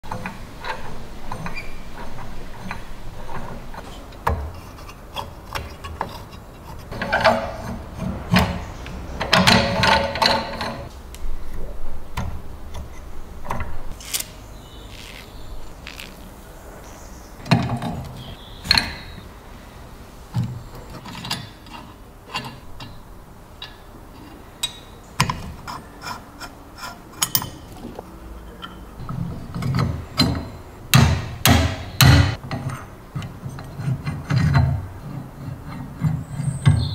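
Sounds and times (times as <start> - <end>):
metal clicks and knocks: 0.1 - 10.9
hand-cranked mill gears grating: 13.9 - 16.4.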